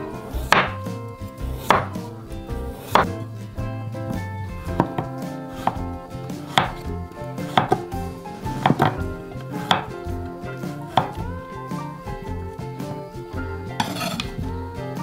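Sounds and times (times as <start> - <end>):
knife knocking on wooden board: 7.5 - 7.9, 8.6 - 9.9.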